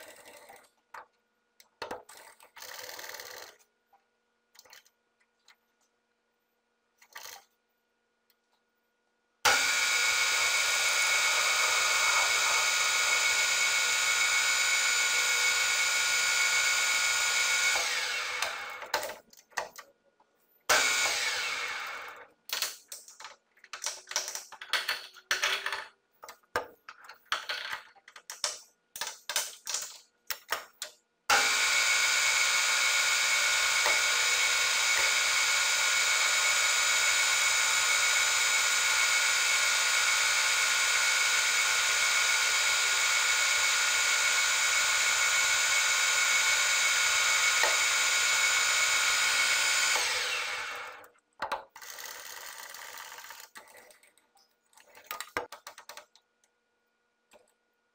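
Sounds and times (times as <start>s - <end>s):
metal lathe whining: 9.5s - 18.8s, 31.3s - 51.0s.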